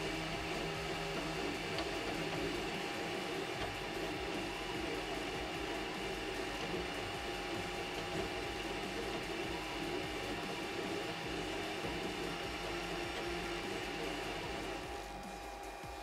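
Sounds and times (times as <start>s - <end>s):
printer whirring and humming: 0.0s - 16.0s.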